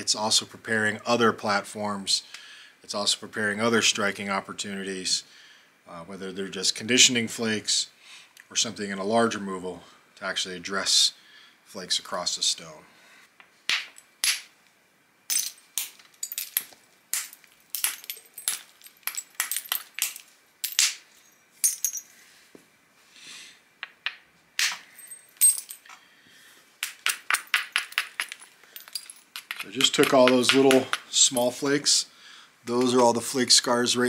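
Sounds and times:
stone flakes clicking and popping: 15.8 - 21.0, 26.8 - 31.2.

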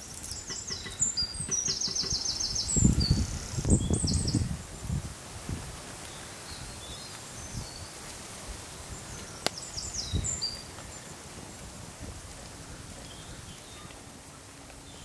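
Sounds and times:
bird chirping: 0.0 - 4.5, 9.0 - 11.2.

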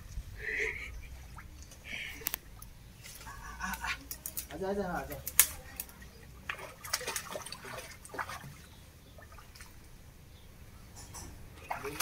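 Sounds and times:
faint water trickle: 0.0 - 12.0
dog splashing through water: 6.4 - 9.7, 11.6 - 12.0.

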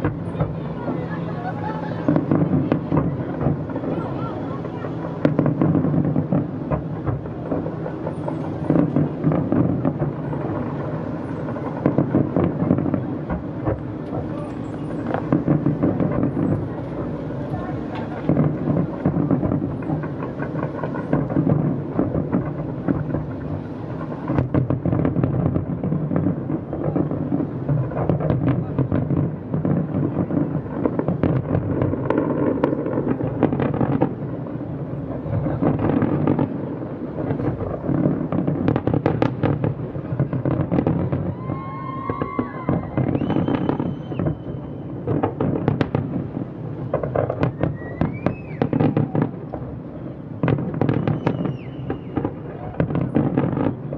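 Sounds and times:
distant firework booms: 0.0 - 53.9
firework cracks and crackle: 0.0 - 53.9.

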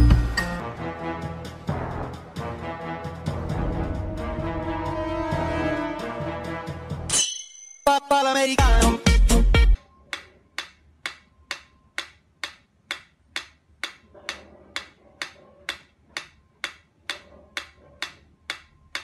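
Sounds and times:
metronome ticking: 10.1 - 19.0.

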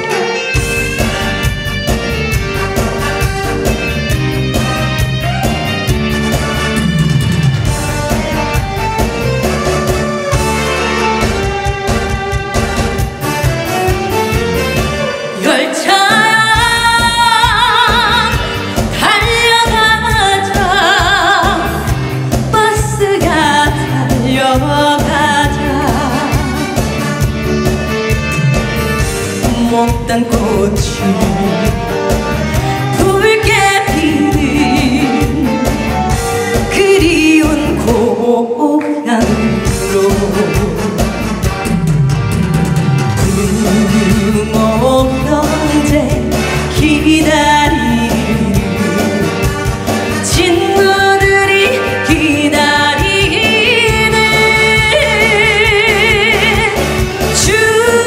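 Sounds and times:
band backing with steady beat: 0.0 - 58.0
woman singing with vibrato: 15.0 - 27.0, 29.3 - 41.4, 43.2 - 58.0.

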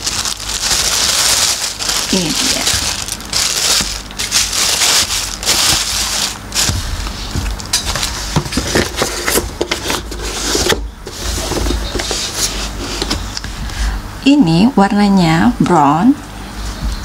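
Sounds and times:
tissue paper crinkling: 0.0 - 12.8.

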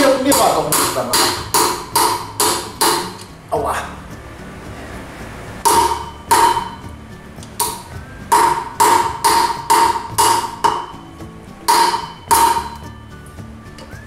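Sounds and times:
hammer striking metal: 0.0 - 3.3, 5.6 - 6.9, 7.5 - 13.0.

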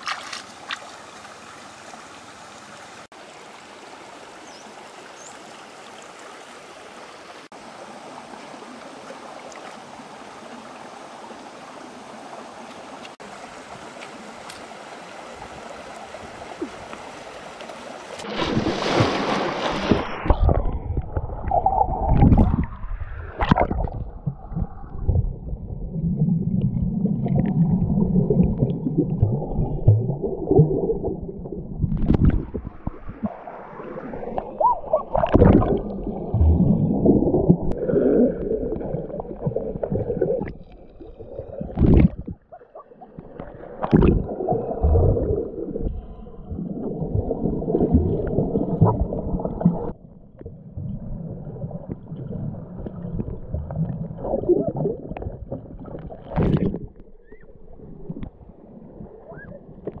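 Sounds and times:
muffled underwater stream rushing: 7.1 - 60.0
sharp splashes or knocks: 18.2 - 20.7.

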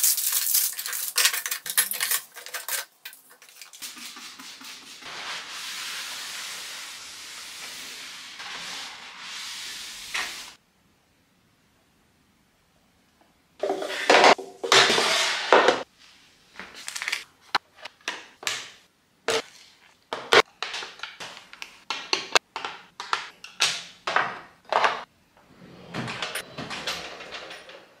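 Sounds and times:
drawer sliding shut: 25.4 - 28.0.

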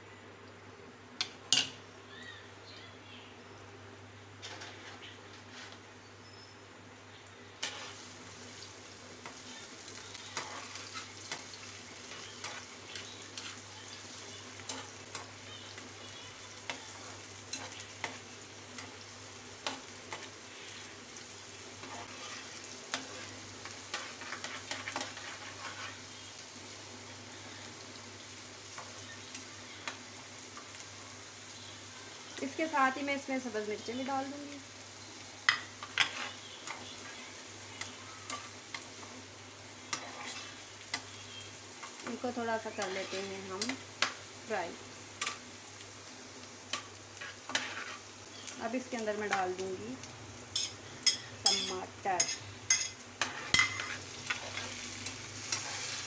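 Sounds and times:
onions sizzling in a pan: 0.0 - 56.0
metal spoon scraping a pan: 4.4 - 5.8, 7.6 - 8.1, 10.3 - 13.6, 21.8 - 26.1, 35.5 - 37.2, 37.8 - 38.9, 39.9 - 41.2, 41.9 - 44.2, 46.7 - 48.1, 50.6 - 56.0.

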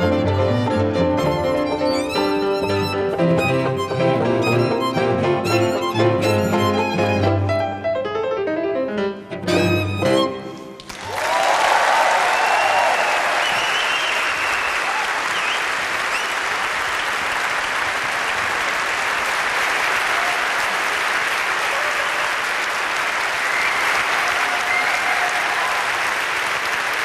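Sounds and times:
large audience applauding: 10.8 - 27.0.

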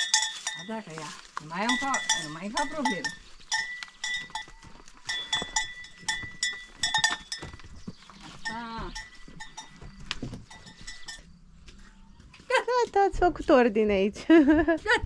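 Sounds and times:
livestock bells clanking: 0.0 - 11.4
animals shuffling with knocks: 0.0 - 13.9.

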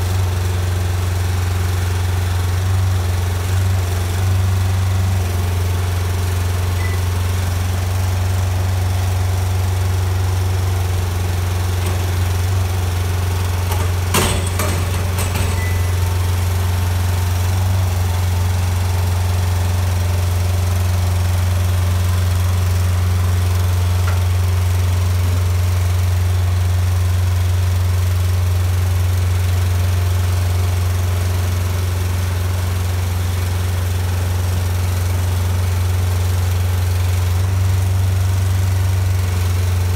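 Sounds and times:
knocks: 11.8 - 12.6, 13.6 - 16.0.

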